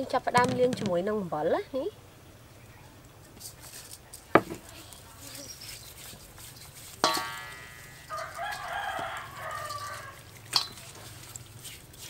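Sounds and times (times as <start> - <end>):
rooster crowing: 8.0 - 10.4.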